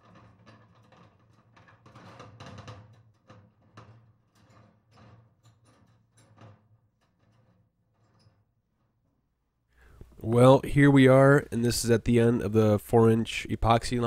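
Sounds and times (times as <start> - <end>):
auger cable knocking and clattering: 0.0 - 9.3.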